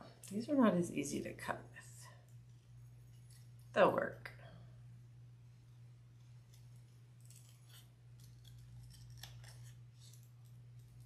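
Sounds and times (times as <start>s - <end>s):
small snips cutting: 6.5s - 10.3s.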